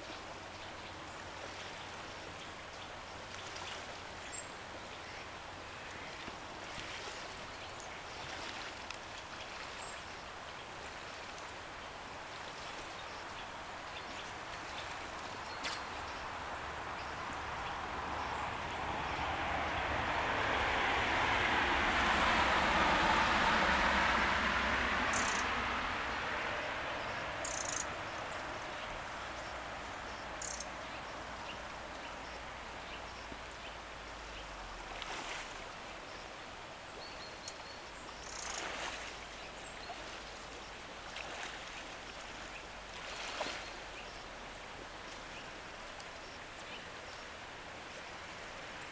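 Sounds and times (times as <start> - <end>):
river water flowing: 0.0 - 48.9
passing vehicle: 16.8 - 33.5.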